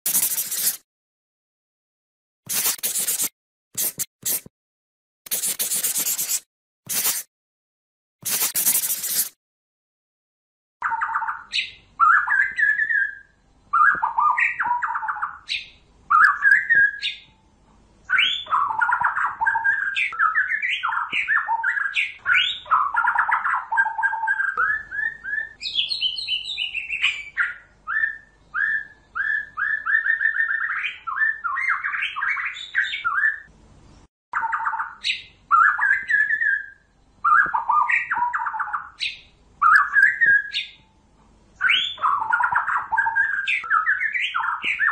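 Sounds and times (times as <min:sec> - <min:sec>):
bird song whistles and chatter: 0:10.8 - 0:17.3, 0:18.1 - 0:33.5, 0:34.4 - 0:40.9, 0:41.6 - 0:44.9.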